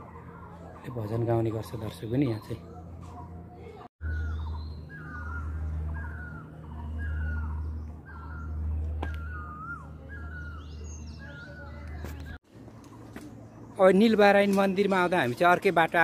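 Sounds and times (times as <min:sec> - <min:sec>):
bird calling wavering note: 0:04.0 - 0:11.9.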